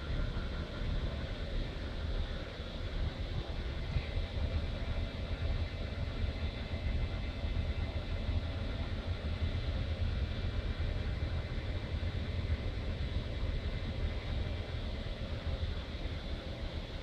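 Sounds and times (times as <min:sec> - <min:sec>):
faint ventilation hum: 0:00.0 - 0:17.0.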